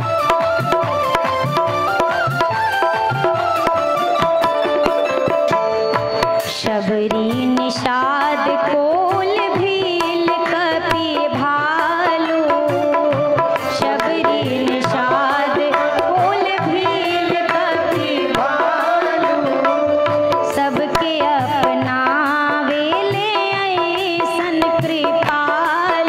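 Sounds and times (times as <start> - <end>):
tabla beats: 0.0 - 26.0
woman singing devotional song: 6.4 - 26.0.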